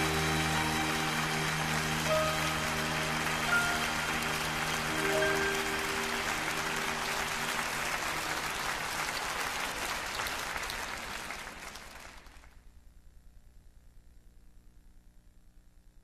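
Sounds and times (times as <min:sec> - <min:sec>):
band holding final notes: 0:00.0 - 0:09.0
audience applauding: 0:00.0 - 0:12.6.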